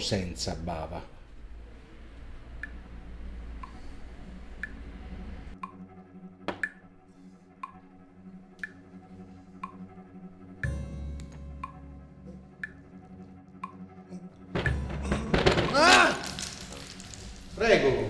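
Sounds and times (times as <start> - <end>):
clock ticking: 2.5 - 2.9, 3.5 - 4.0, 4.6 - 4.9, 5.5 - 5.9, 9.6 - 9.9, 13.5 - 13.9.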